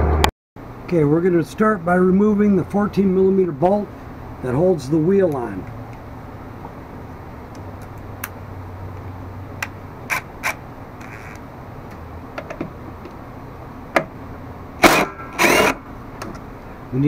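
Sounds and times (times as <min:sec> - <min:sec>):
cordless impact driver burst: 0:14.8 - 0:15.8.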